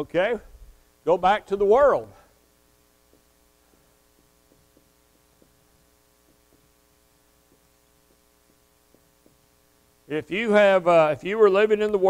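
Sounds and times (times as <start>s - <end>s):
steady electrical hum: 0.0s - 12.0s
marker writing on whiteboard: 3.1s - 9.9s.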